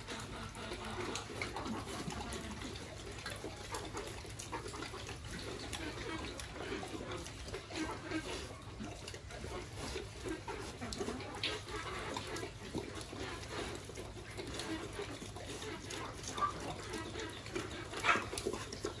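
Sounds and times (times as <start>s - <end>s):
pig chomping and slurping feed: 0.0s - 19.0s.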